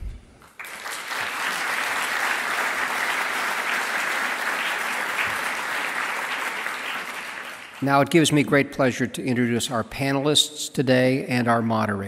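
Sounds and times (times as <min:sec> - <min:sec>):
audience applauding: 0:00.4 - 0:08.2.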